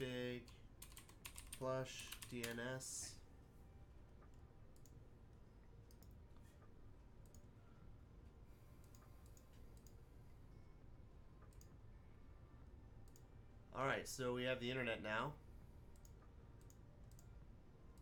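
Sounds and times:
computer mouse clicks: 0:00.4 - 0:02.7, 0:04.3 - 0:05.0, 0:05.9 - 0:06.2, 0:07.2 - 0:07.5, 0:08.8 - 0:10.0, 0:11.4 - 0:11.8, 0:13.0 - 0:13.3, 0:15.9 - 0:17.3.

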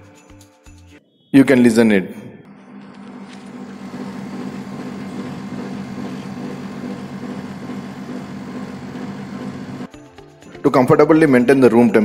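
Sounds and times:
air conditioner humming: 0:02.5 - 0:09.9.

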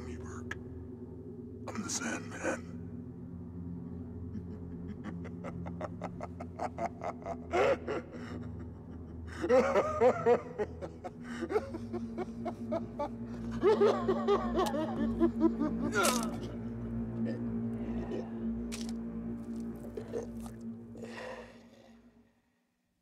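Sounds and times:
low steady drone: 0:00.0 - 0:22.8
man laughing: 0:04.3 - 0:16.6.

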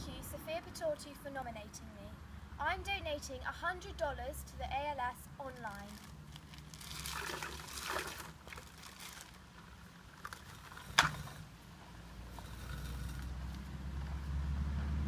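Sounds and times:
ice water sloshing in bucket: 0:05.8 - 0:09.6.

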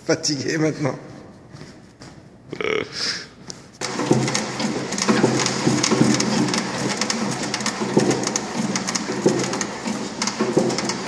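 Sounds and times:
pump mechanism clicks and knocks: 0:03.8 - 0:11.0.

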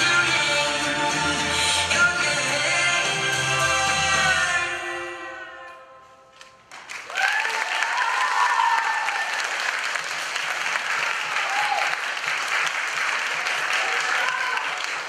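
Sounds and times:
dance music: 0:00.0 - 0:05.7
audience applause: 0:06.7 - 0:15.0.

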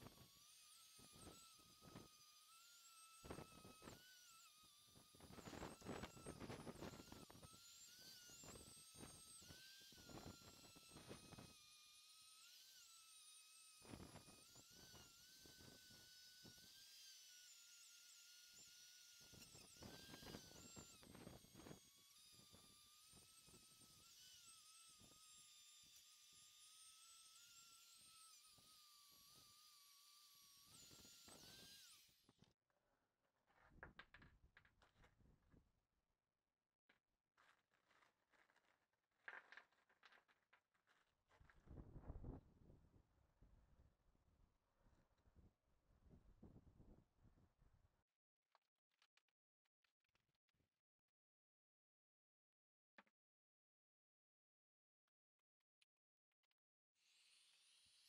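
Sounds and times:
rotary tool whining: 0:00.0 - 0:32.5, 0:37.4 - 0:42.2, 0:57.0 - 0:58.0.

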